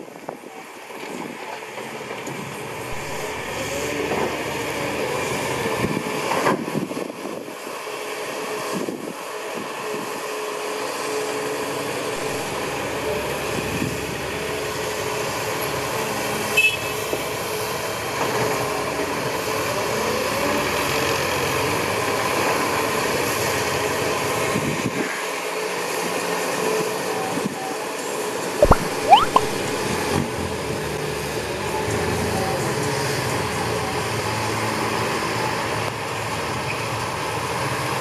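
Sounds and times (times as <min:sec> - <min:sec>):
short sharp sound: 0:28.6 - 0:29.8.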